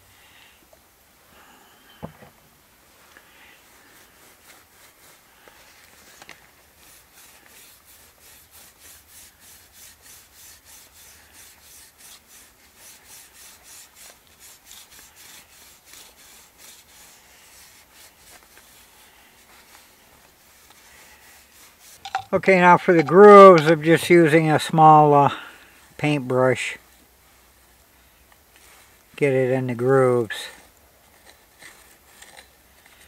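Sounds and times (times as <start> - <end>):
cloth rag rubbing wood: 3.4 - 24.2.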